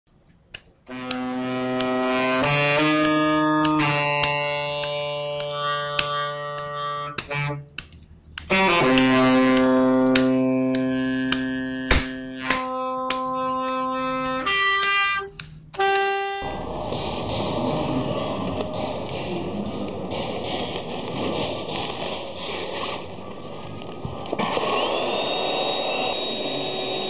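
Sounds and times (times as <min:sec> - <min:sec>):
clicks: 0:00.1 - 0:26.3
reedy held notes music: 0:00.9 - 0:24.2
blower rushing air: 0:16.4 - 0:27.0.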